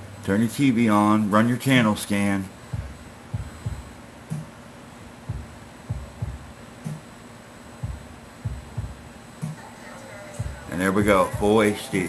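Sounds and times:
faint room hum: 0.0s - 12.0s
soft low thumps: 2.5s - 4.6s, 5.2s - 7.1s, 7.8s - 9.6s.

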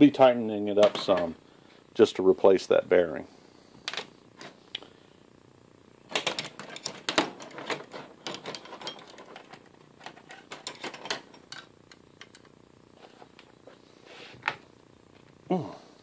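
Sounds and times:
metal tools clinking and clattering: 6.2s - 12.4s.

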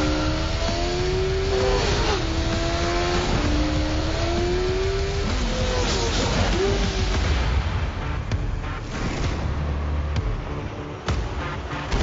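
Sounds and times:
motorcycle engine accelerating: 0.0s - 7.4s.

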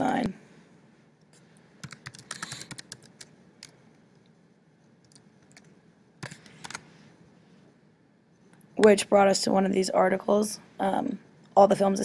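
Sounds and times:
typing on computer keyboard: 1.8s - 3.8s, 5.0s - 6.8s.

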